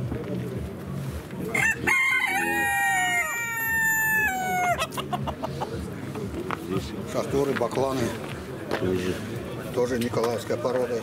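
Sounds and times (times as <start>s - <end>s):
rooster crowing: 1.5s - 4.8s.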